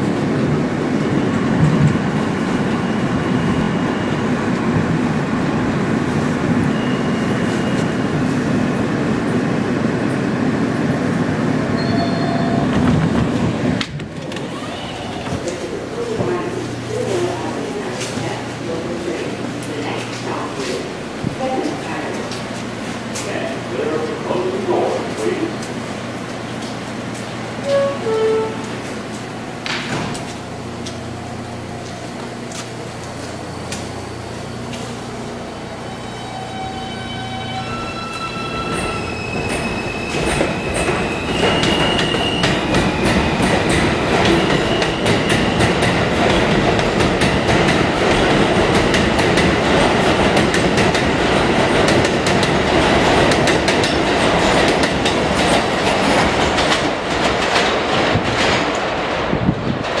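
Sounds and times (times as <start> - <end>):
subway train motor whine: 0.0 - 57.4
train wheels clattering on rails: 38.6 - 60.0.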